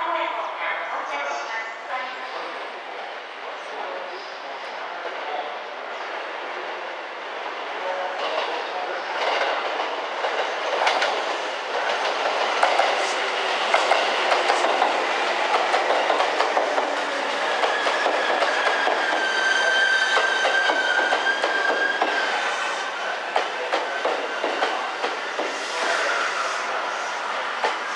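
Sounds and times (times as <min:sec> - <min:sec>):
train wheels clacking over rail joints: 0:09.2 - 0:22.4, 0:23.2 - 0:25.9, 0:27.5 - 0:27.9
high-pitched train whine: 0:10.2 - 0:27.9.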